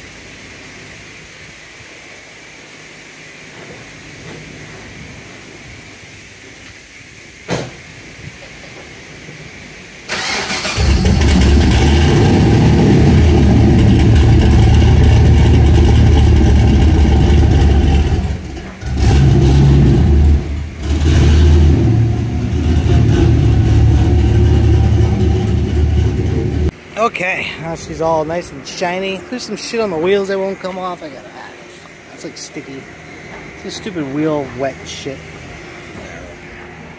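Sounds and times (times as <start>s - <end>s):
car engine starting and revving: 10.1s - 26.7s.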